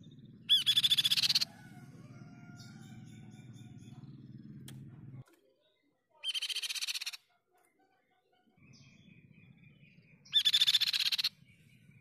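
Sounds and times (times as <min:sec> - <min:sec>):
bird singing rapid trills: 0:00.0 - 0:07.4, 0:08.0 - 0:12.0.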